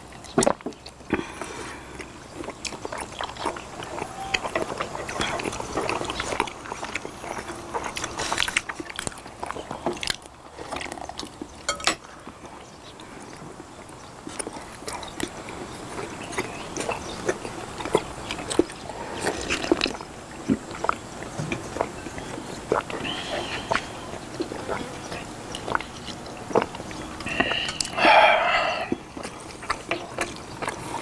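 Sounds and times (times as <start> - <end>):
people chewing: 0.0 - 31.0
sipping: 0.0 - 31.0
cutlery clicking against glass bowls: 11.7 - 12.0.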